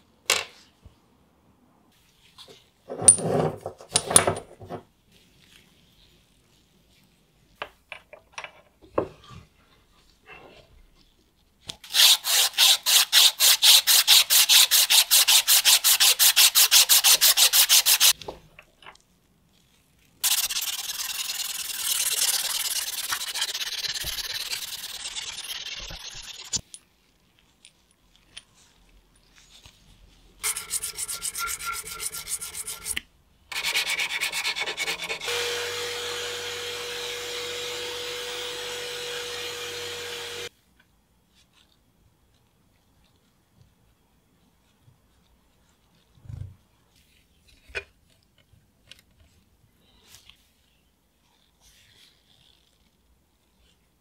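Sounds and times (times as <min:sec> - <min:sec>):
abrasive cloth rubbing metal: 0:30.4 - 0:33.0
hand rubbing steel shaft: 0:30.4 - 0:33.0
power drill motor whine: 0:35.3 - 0:40.5.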